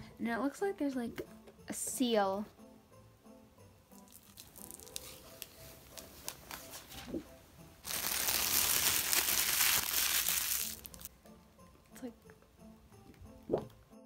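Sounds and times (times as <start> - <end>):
plastic wrapping crinkling: 4.1 - 7.1, 7.8 - 11.1.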